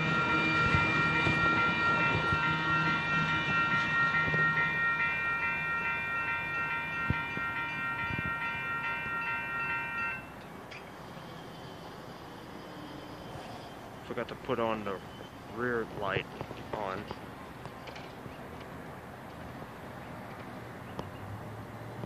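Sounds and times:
crossing warning bell ringing: 0.0s - 13.4s
passing train rumble: 0.0s - 22.0s.

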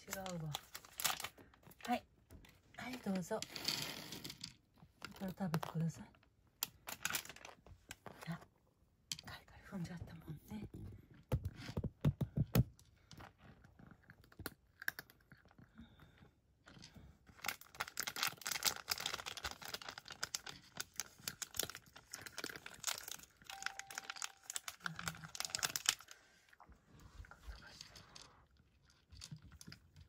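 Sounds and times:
cat crunching dry kibble: 0.0s - 2.0s, 6.6s - 8.2s, 12.9s - 27.0s, 27.6s - 30.0s.

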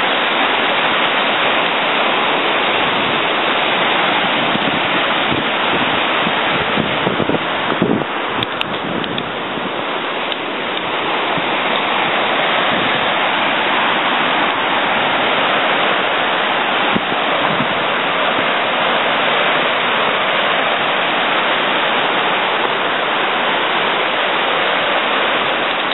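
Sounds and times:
water rushing over rocks: 0.0s - 25.9s.

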